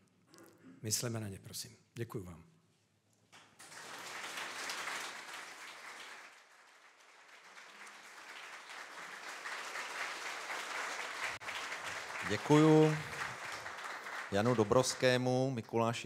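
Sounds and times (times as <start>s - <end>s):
audience applauding: 3.4s - 15.9s.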